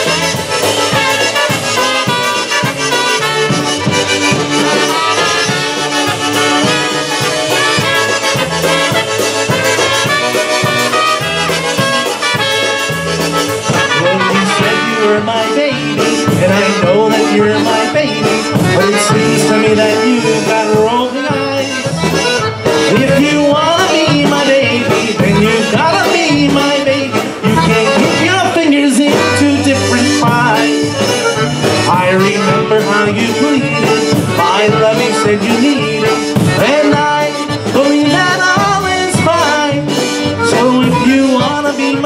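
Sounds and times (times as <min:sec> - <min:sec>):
polka on accordion and concertina: 0:00.0 - 0:42.0
man singing: 0:13.7 - 0:22.1, 0:22.7 - 0:31.1, 0:31.7 - 0:42.0.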